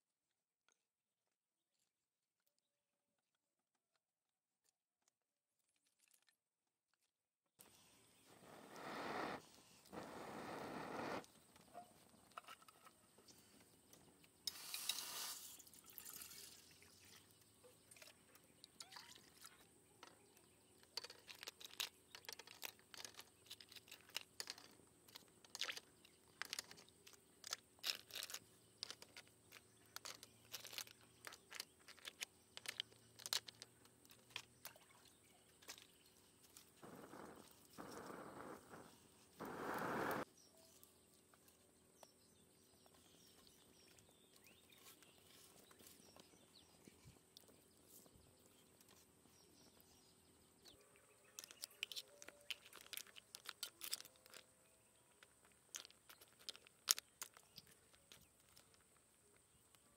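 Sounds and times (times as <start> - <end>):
breath blown onto embers: 8.3 - 11.2, 36.8 - 40.2
fire popping and crackling: 36.8 - 40.2.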